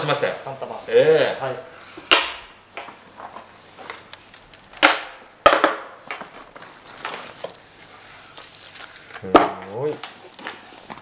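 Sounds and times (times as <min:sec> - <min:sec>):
bag rustling: 0:06.3 - 0:11.0.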